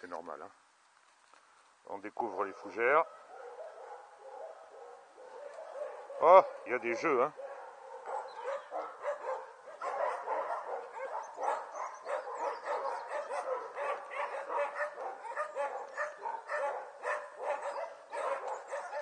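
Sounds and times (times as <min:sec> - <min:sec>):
puppies yapping: 0:03.0 - 0:19.0.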